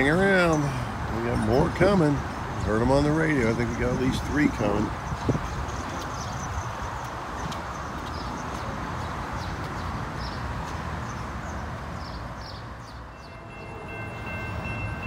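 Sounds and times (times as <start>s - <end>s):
railroad crossing bell ringing: 0.0s - 3.2s, 13.1s - 15.0s.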